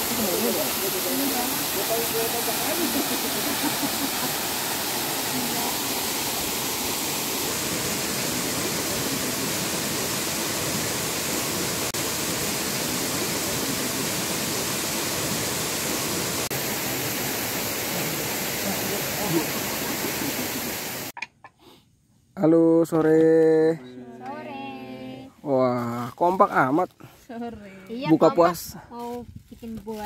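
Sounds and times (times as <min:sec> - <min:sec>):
waterfall rushing: 0:00.0 - 0:21.1.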